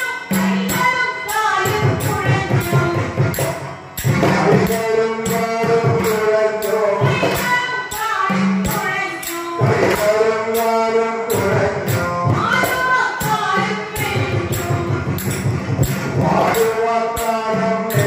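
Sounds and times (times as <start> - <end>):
woman singing: 0.0 - 3.4, 6.8 - 10.0, 12.2 - 15.2
percussion beat: 0.0 - 18.0.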